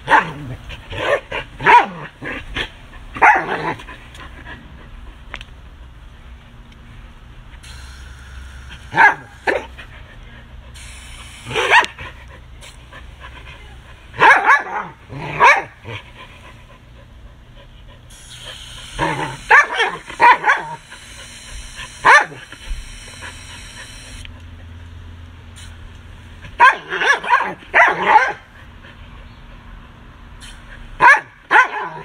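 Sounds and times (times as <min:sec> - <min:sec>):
dog barking: 0:00.0 - 0:00.4, 0:01.0 - 0:02.1, 0:03.2 - 0:03.8, 0:08.9 - 0:09.7, 0:11.5 - 0:12.0, 0:14.2 - 0:15.8, 0:19.4 - 0:20.8, 0:22.0 - 0:22.4, 0:26.6 - 0:28.5, 0:31.0 - 0:32.0
hose spraying water: 0:07.6 - 0:09.8, 0:10.7 - 0:12.0, 0:18.1 - 0:24.2, 0:25.6 - 0:25.8, 0:30.4 - 0:30.8.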